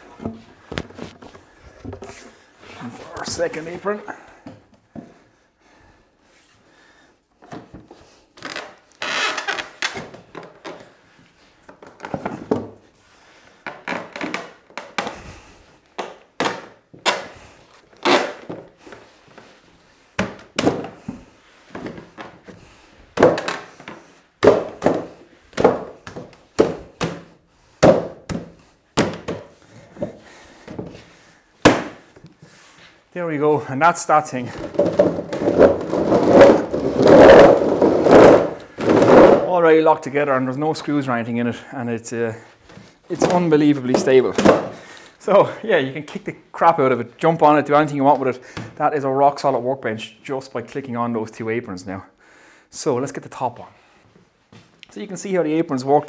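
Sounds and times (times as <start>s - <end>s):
wooden knocks and thumps: 34.5s - 39.5s
timber scraping on timber: 34.8s - 39.5s.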